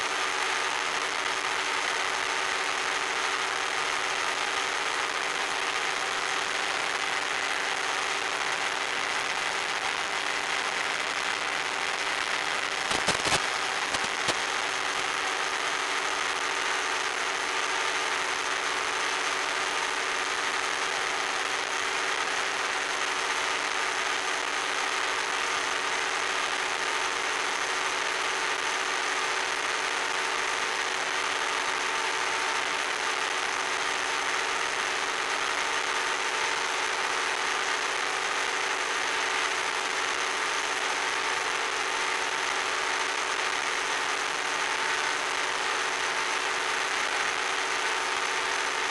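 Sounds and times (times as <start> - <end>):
model plane motor and propeller: 0.0 - 48.9
sharp crackles: 0.2 - 27.2.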